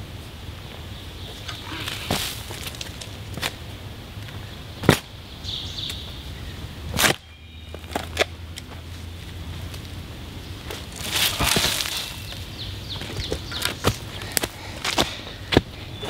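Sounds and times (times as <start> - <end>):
shovel chopping into soil: 6.9 - 7.2, 11.0 - 12.4.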